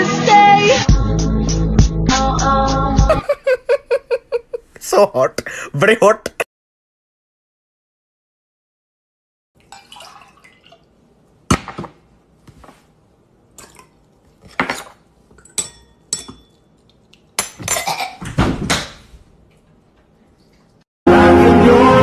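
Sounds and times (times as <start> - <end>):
spoon clinking against glass: 15.4 - 16.7.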